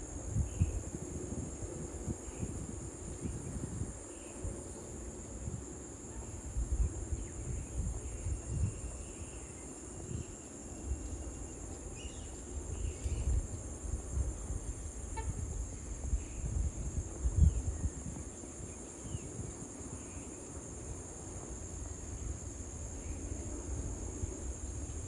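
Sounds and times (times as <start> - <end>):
wind on microphone: 0.0 - 20.3
insects droning: 0.0 - 25.0.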